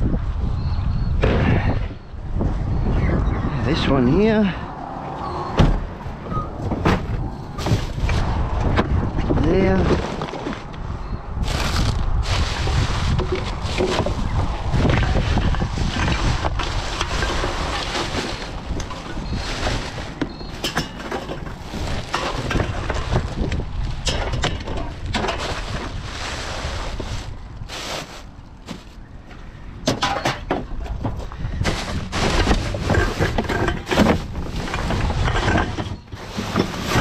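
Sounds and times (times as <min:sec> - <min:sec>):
wind buffeting microphone: 0:00.0 - 0:37.0
rubbish knocking and clattering: 0:06.6 - 0:10.7, 0:11.4 - 0:26.0, 0:29.8 - 0:37.0.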